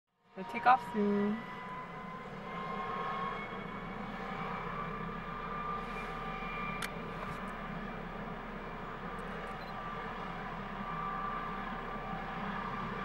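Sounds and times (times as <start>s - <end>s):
turbine engine whine: 0.2s - 13.0s.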